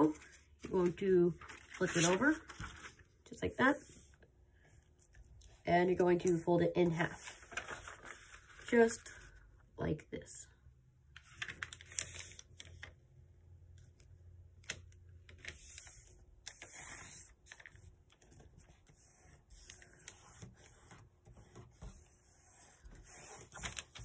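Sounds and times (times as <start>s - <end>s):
paper being folded and creased: 0.0s - 3.1s, 6.9s - 9.3s, 11.2s - 13.0s, 13.9s - 24.0s.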